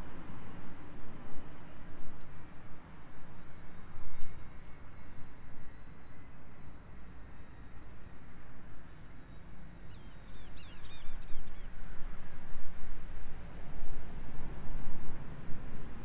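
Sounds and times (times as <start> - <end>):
wind rumbling on microphone: 10.0 - 16.0.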